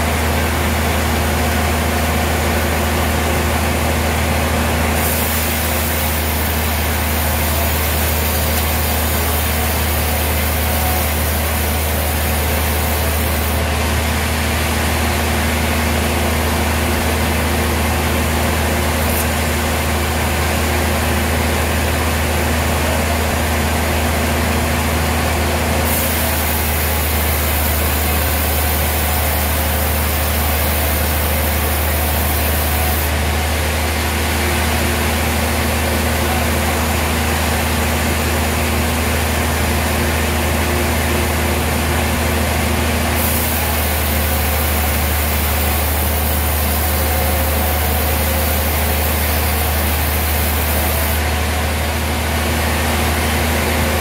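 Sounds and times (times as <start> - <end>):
band sawmill drone: 0.0 - 54.0
saw hiss: 5.0 - 13.6, 25.8 - 33.1, 43.2 - 51.2.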